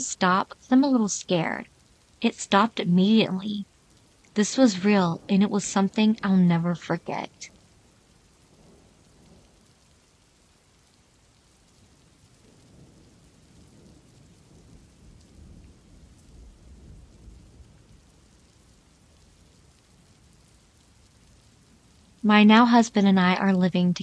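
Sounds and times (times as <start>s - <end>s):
faint steady rain: 0.0s - 24.0s
low rumble of thunder: 8.4s - 9.9s, 11.3s - 20.5s.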